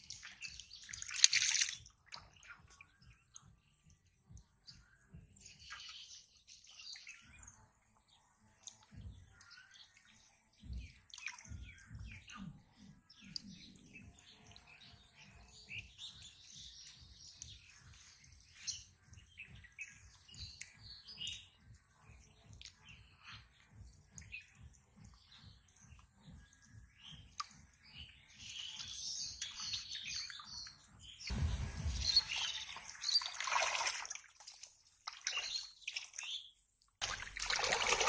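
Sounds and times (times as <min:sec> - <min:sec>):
water splashing in shallows: 0:00.0 - 0:02.8, 0:31.3 - 0:38.0
faint birds chirping: 0:00.0 - 0:37.0
soft low thuds: 0:31.1 - 0:33.0.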